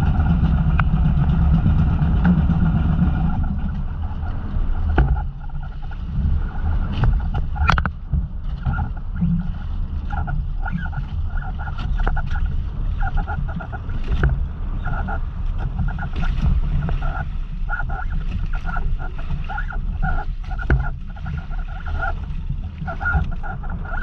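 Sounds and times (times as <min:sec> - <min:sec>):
wind and water rumble: 0:00.0 - 0:24.0.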